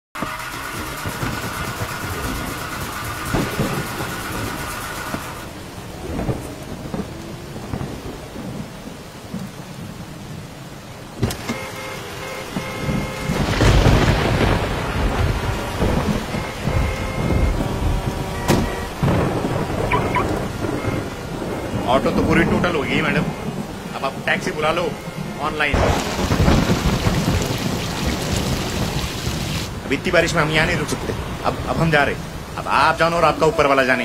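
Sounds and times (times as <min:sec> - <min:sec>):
heavy rain falling: 0:00.2 - 0:34.0
rumble of thunder: 0:00.6 - 0:11.2, 0:12.5 - 0:32.6
sharp crack of thunder: 0:00.7 - 0:10.0, 0:12.5 - 0:29.8.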